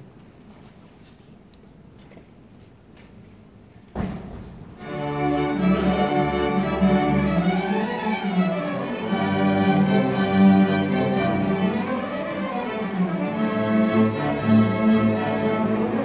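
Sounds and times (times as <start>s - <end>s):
string orchestra playing: 4.8s - 16.0s.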